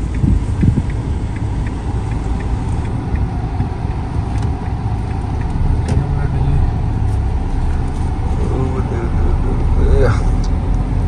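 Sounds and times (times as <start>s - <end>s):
faint light ticking: 0.0s - 8.5s
car engine and tyres rumbling: 0.0s - 11.0s.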